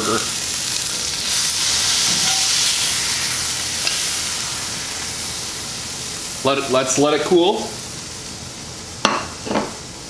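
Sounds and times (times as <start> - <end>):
meat patty sizzling in a skillet: 0.0 - 10.0.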